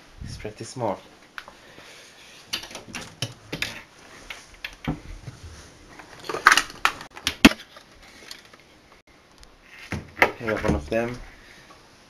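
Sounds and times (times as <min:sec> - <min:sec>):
handling knocks and clicks: 0:02.5 - 0:05.4.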